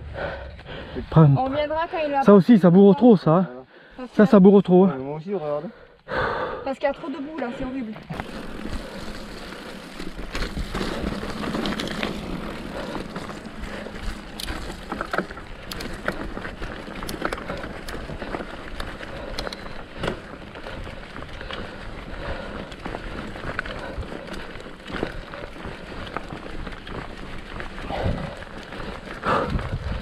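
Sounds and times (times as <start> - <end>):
bike rumbling over trail: 6.9 - 30.0
bike frame clicks and knocks: 8.2 - 21.9.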